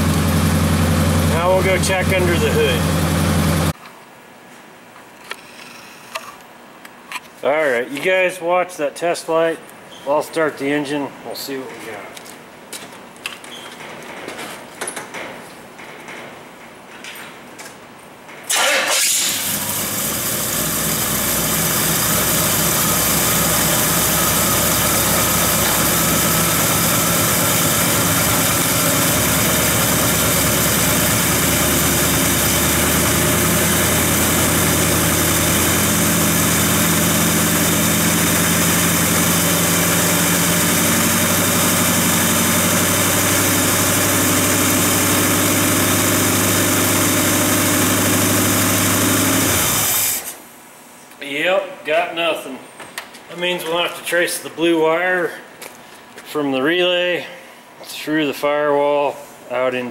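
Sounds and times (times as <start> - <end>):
car engine starting and idling: 0.0 - 3.8, 18.5 - 50.4.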